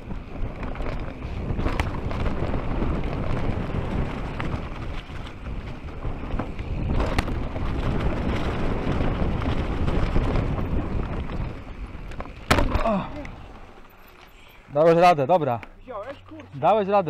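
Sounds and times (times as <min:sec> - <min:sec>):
wind buffeting microphone: 0:00.0 - 0:13.8
bike rattling: 0:00.0 - 0:17.0
knobby tyres rumbling on dirt: 0:00.0 - 0:17.0.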